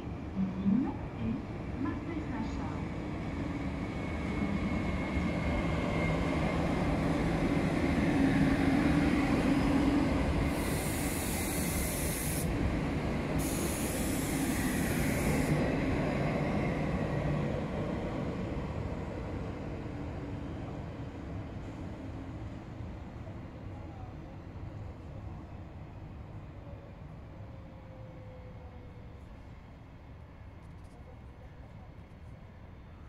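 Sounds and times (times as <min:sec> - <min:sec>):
hiss: 0:10.4 - 0:12.6, 0:13.4 - 0:15.6.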